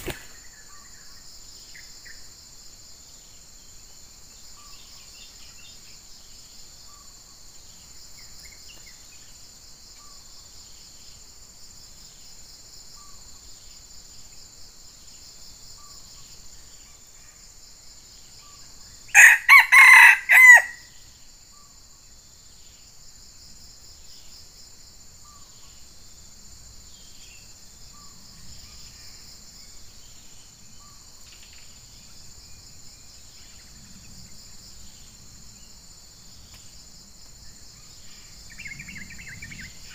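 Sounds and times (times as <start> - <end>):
insects buzzing: 0.0 - 39.9
rooster crowing: 19.1 - 20.9.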